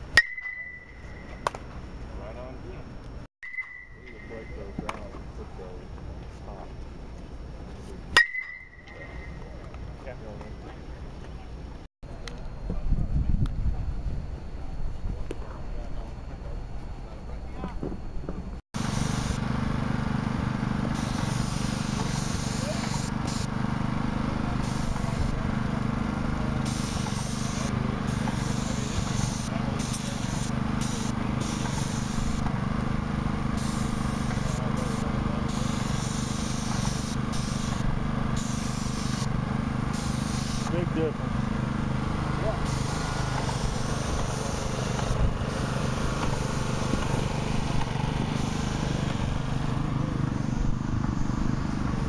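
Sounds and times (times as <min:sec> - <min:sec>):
paint sprayer pump humming: 0:18.8 - 0:52.0
spray wand hissing: 0:21.0 - 0:23.5, 0:26.6 - 0:32.4, 0:33.6 - 0:37.8, 0:38.4 - 0:40.8, 0:42.6 - 0:47.6.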